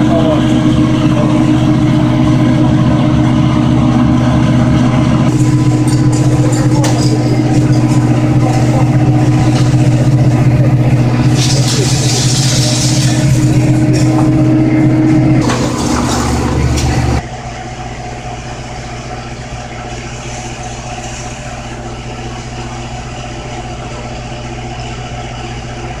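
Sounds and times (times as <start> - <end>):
fire engine engine droning: 0.0 - 26.0
steady background hum: 0.0 - 26.0.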